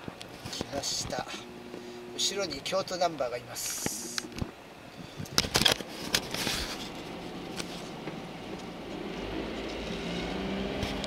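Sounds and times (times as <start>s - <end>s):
recording device rustling and clicking: 0.0s - 1.8s, 3.0s - 9.0s.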